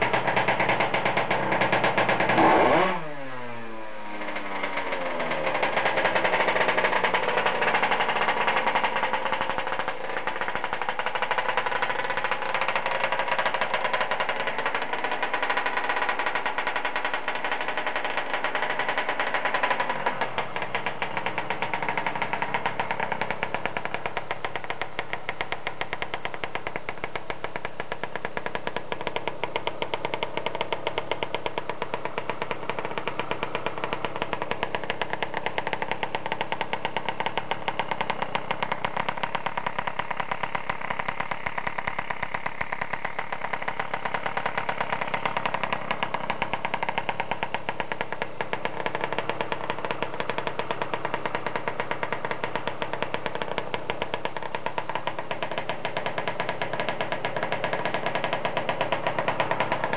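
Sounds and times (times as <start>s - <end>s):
two-stroke scooter engine running: 0.0s - 59.9s.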